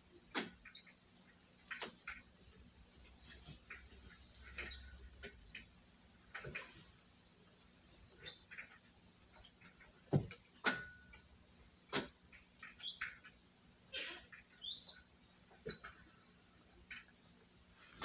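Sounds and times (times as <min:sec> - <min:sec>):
high chirping squeaks: 0:00.6 - 0:01.0, 0:08.2 - 0:08.8, 0:12.6 - 0:13.3, 0:14.0 - 0:16.3.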